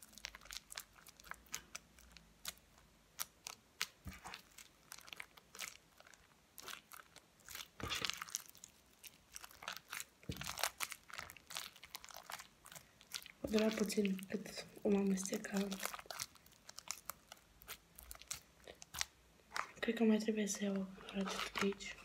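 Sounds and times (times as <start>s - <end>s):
wet slime clicks and crackles: 0.0s - 19.8s.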